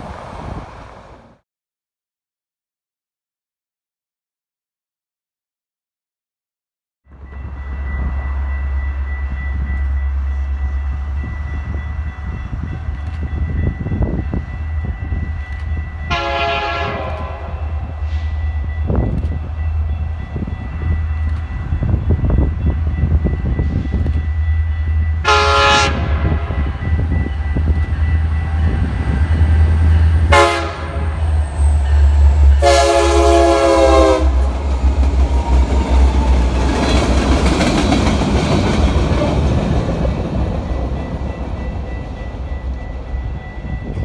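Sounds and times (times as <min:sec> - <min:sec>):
train wheels on rails: 0:00.0 - 0:01.4, 0:07.1 - 0:44.0
locomotive air horn blasts: 0:16.1 - 0:18.4, 0:25.2 - 0:27.0, 0:30.2 - 0:31.3, 0:32.5 - 0:34.5.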